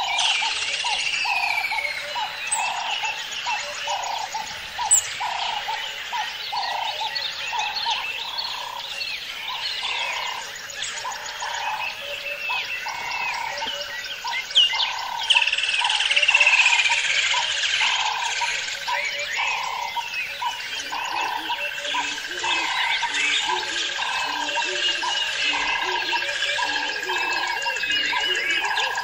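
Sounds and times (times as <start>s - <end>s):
birds chirping and whistling: 0.0s - 29.0s
frog calling: 0.0s - 29.0s.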